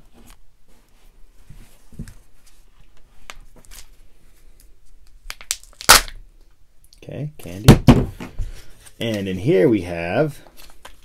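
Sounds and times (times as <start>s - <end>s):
plastic egg cracking open: 5.0s - 6.2s.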